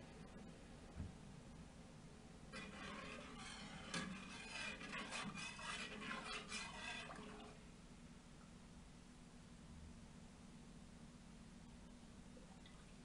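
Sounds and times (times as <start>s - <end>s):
liquid being stirred: 2.5s - 7.6s.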